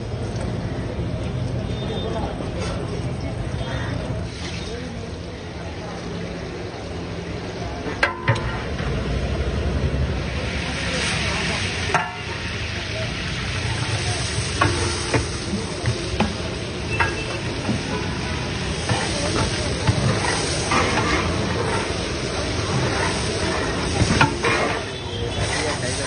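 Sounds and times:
onions sizzling in hot oil: 0:06.0 - 0:26.0.

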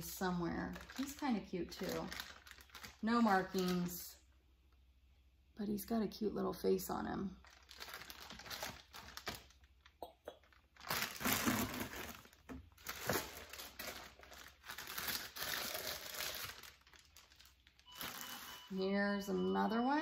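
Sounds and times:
plastic wrap crinkling: 0:00.0 - 0:04.1, 0:07.4 - 0:18.8.

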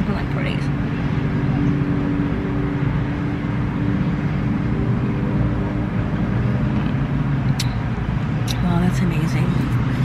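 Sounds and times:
car engine hum: 0:00.0 - 0:10.0
road noise: 0:00.0 - 0:10.0.

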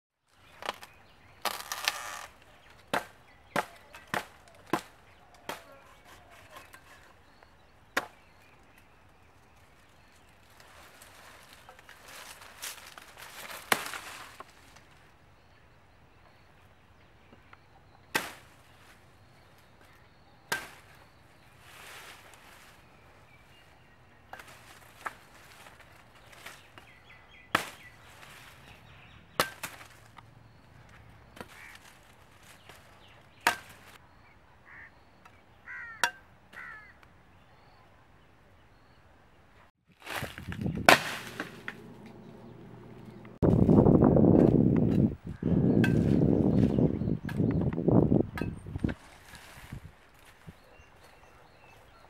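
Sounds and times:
billhook chopping branches: 0:00.6 - 0:06.8, 0:08.0 - 0:08.3, 0:12.6 - 0:14.5, 0:18.1 - 0:18.6, 0:20.5 - 0:21.0, 0:27.5 - 0:28.4, 0:29.3 - 0:30.1, 0:33.4 - 0:34.0, 0:40.0 - 0:43.4
leafy branches rustling: 0:08.4 - 0:15.2, 0:18.2 - 0:34.0, 0:39.9 - 0:44.7, 0:48.8 - 0:50.7.

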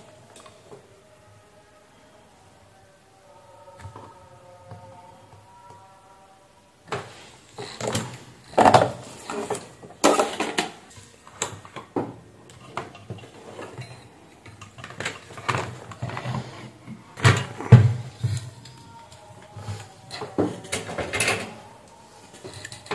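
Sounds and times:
knocks and clatter on workbench: 0:07.8 - 0:10.8.

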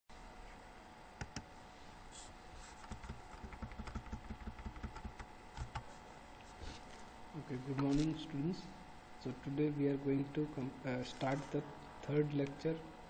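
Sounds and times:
faint steady hum: 0:00.1 - 0:13.0
computer keyboard key taps: 0:02.8 - 0:05.8.

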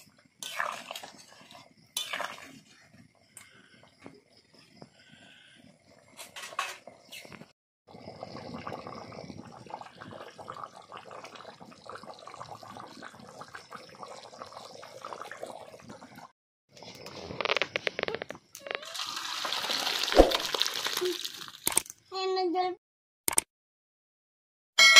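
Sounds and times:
curry boiling in a pan: 0:00.1 - 0:06.2, 0:07.9 - 0:16.3.

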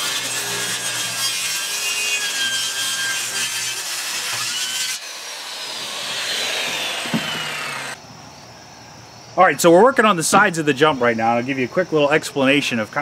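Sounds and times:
circular saw cutting plywood: 0:00.0 - 0:08.0
short knock: 0:07.0 - 0:07.5.

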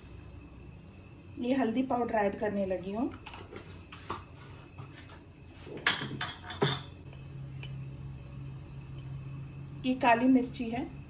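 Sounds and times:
low steady hum: 0:00.0 - 0:11.0
utensils clinking against metal bowl: 0:05.8 - 0:07.0.

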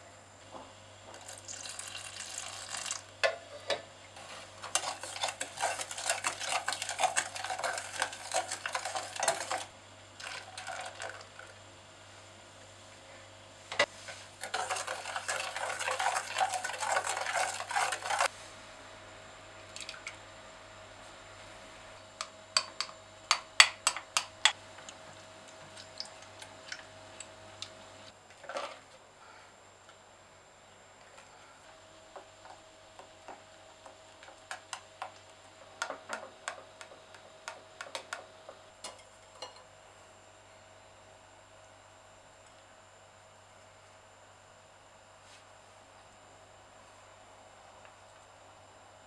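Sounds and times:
spoon scraping a saucepan: 0:04.6 - 0:09.6.

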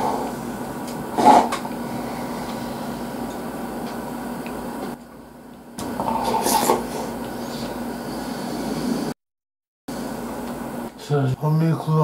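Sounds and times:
person slurping from bowl: 0:01.2 - 0:02.9, 0:06.0 - 0:09.1.

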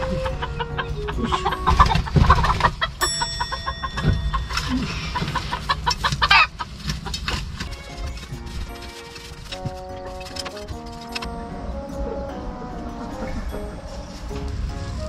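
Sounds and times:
chickens clucking: 0:00.0 - 0:15.0
short ringing tone: 0:03.0 - 0:05.2
knocks and clicks: 0:03.5 - 0:06.3
chicken squawk: 0:05.0 - 0:06.6.

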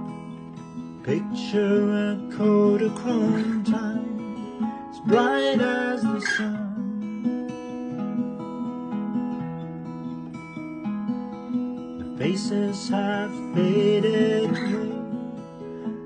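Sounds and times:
acoustic guitar: 0:00.0 - 0:16.0
man singing: 0:01.0 - 0:06.9, 0:12.0 - 0:15.2.

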